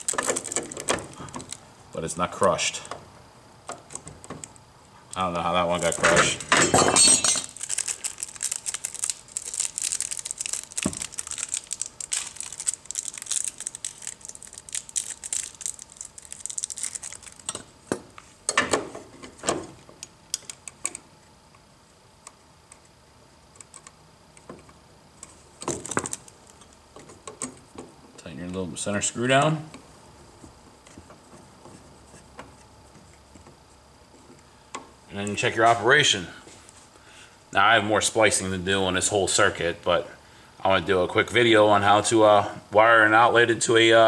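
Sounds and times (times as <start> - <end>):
material crinkling and rustling: 0.0 - 1.6, 5.8 - 19.9.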